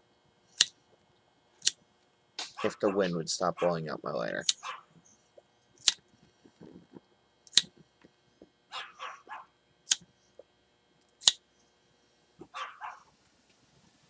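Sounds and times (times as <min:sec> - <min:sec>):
dog barking: 0:02.6 - 0:03.8, 0:04.6 - 0:04.9, 0:08.7 - 0:09.5, 0:12.4 - 0:13.1.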